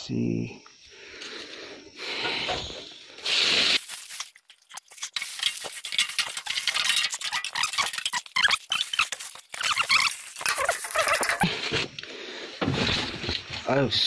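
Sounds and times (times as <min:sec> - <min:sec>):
dry leaves crackling when swept: 0:03.8 - 0:05.8.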